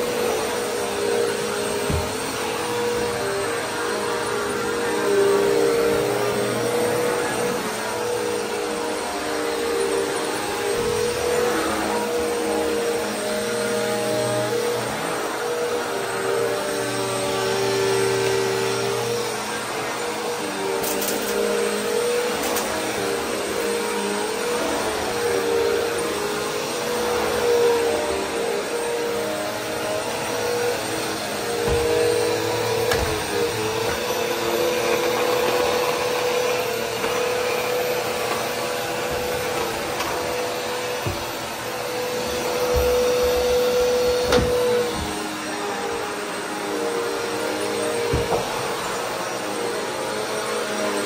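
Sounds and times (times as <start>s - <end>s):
vacuum cleaner running over carpet: 0.0s - 51.0s
vacuum cleaner bumping knocks: 1.8s - 2.2s.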